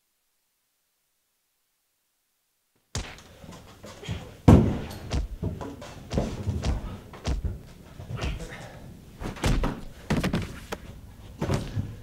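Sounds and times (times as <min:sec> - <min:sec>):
scuffle knocks and thuds: 0:03.0 - 0:08.5, 0:09.2 - 0:10.8
body falling onto carpet: 0:04.5 - 0:07.6.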